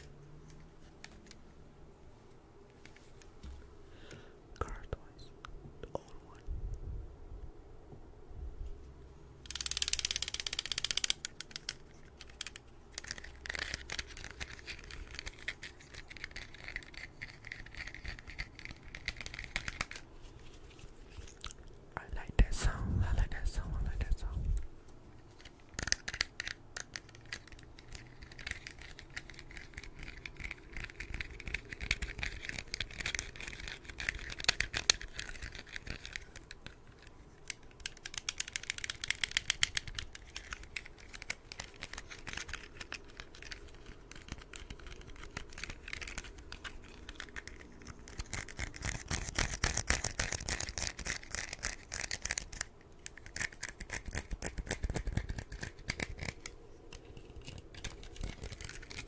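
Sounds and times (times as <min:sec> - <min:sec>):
toy car clicking and rattling: 0:09.4 - 0:20.1, 0:25.4 - 0:59.0.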